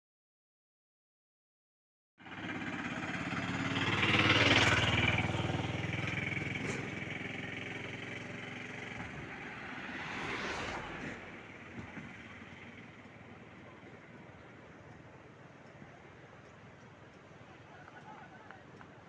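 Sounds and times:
vehicle engine passing: 0:02.2 - 0:14.8.

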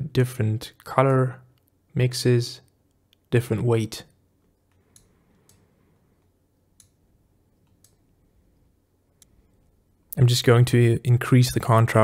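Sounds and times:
faint computer mouse clicks: 0:04.7 - 0:07.0, 0:07.6 - 0:08.0.

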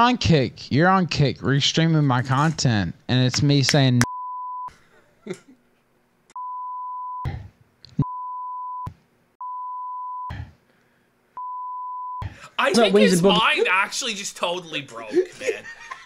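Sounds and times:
censor bleep: 0:06.4 - 0:07.4, 0:08.0 - 0:10.5, 0:11.4 - 0:12.3.

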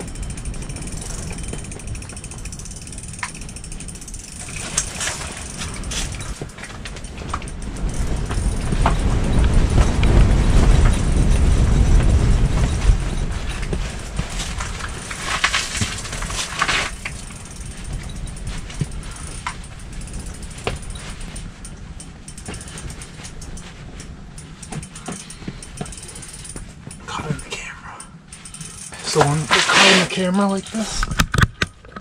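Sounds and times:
fishing reel clicking and rasping: 0:00.0 - 0:31.3
wind buffeting a shelter: 0:00.0 - 0:32.0.

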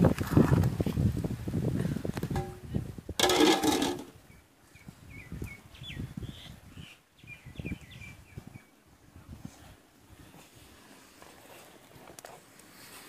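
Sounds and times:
metal lid clattering on pot: 0:03.2 - 0:04.1
birds chirping: 0:04.2 - 0:08.8.

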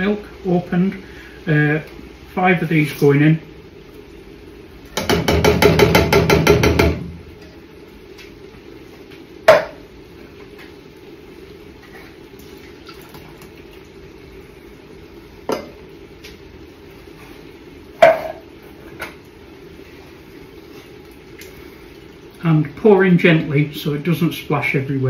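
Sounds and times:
sharp knock on metal pot: 0:05.0 - 0:07.1, 0:09.5 - 0:09.8, 0:18.0 - 0:18.4.

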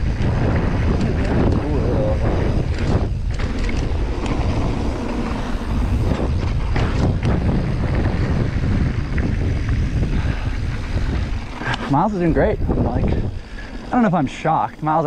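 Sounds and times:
bike clicks and knocks: 0:00.0 - 0:12.0
bike tyre rumble: 0:00.0 - 0:15.0
wind noise on microphone: 0:00.0 - 0:15.0.

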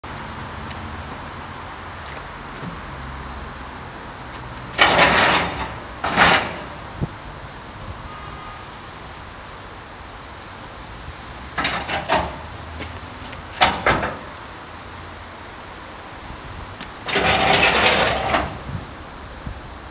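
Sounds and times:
metal cage scraping on asphalt: 0:04.3 - 0:07.0, 0:11.5 - 0:14.4, 0:17.0 - 0:18.8.

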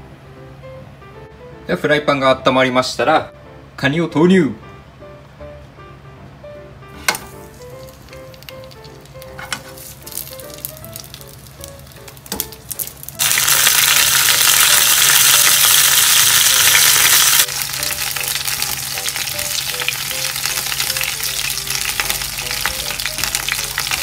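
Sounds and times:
crackles of frying: 0:07.0 - 0:24.0
crabs sizzling in hot oil: 0:07.1 - 0:24.0.

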